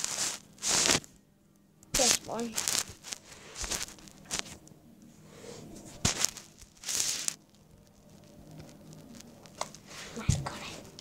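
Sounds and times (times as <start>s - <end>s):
plastic bottle crinkling: 2.0s - 4.6s.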